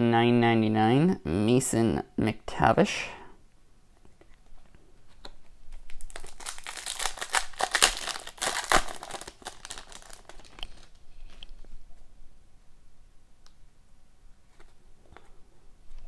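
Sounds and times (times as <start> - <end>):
foil wrapper crinkling and tearing: 5.7 - 11.5.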